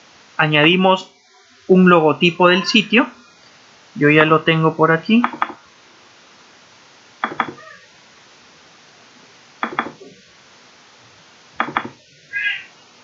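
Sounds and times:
faint steady hiss: 0:00.0 - 0:13.0
computer mouse double-clicking: 0:07.2 - 0:07.6, 0:09.6 - 0:10.0.

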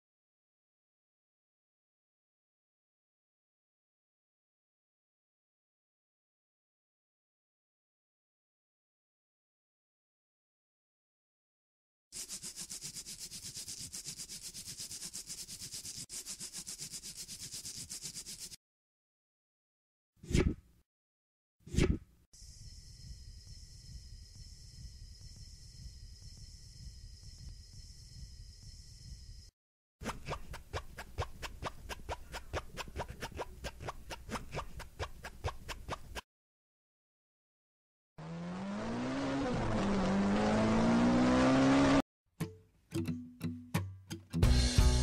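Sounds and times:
rhythmic rasping scratching: 0:30.0 - 0:36.2.

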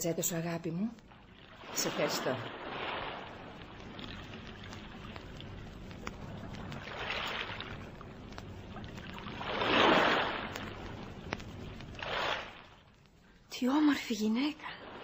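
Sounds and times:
sea waves washing onto beach: 0:01.6 - 0:12.8.

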